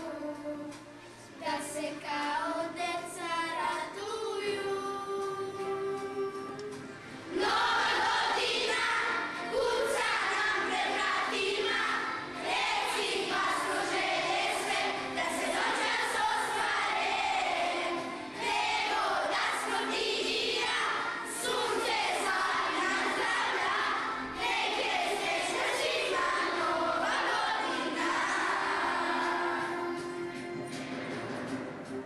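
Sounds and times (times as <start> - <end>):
children singing: 7.3 - 30.4.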